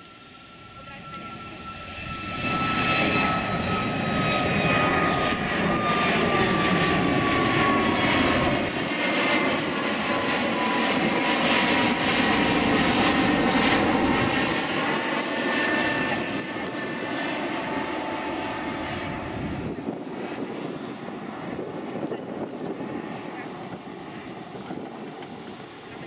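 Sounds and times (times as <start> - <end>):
high jet whine falling in pitch: 0.0 - 26.0
jet airliner engine roar: 0.0 - 26.0.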